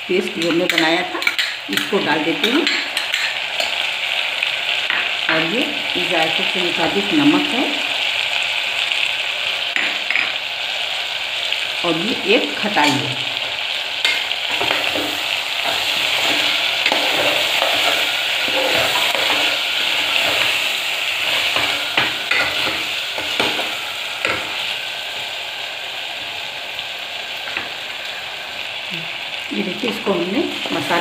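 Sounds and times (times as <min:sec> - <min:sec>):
sizzling in oil: 0:00.0 - 0:31.0
steel spoon scraping a pan: 0:00.3 - 0:03.9, 0:14.0 - 0:24.8.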